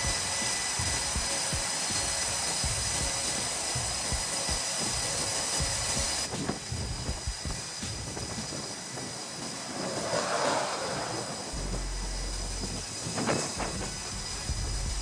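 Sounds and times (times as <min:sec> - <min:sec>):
jet fighter taking off: 0:00.0 - 0:15.0
low rumble: 0:11.2 - 0:15.0.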